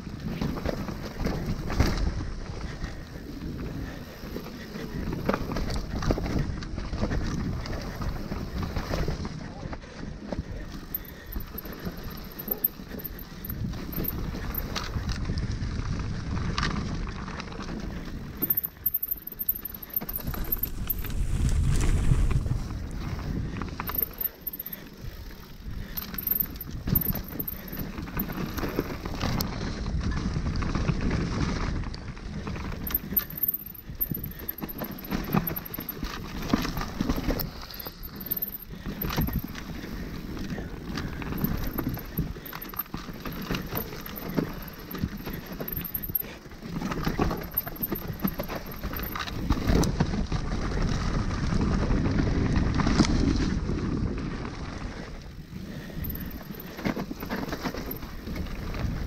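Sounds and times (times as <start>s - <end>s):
bike rattling over bumps: 0.0s - 59.0s
bike tyres on dirt: 0.0s - 59.0s
wind rumbling on microphone: 13.4s - 18.4s, 20.1s - 24.0s.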